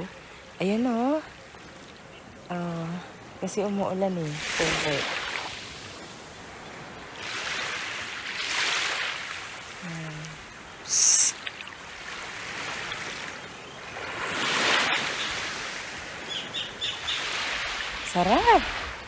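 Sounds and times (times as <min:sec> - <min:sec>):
small waves washing on shore: 0:00.0 - 0:19.0.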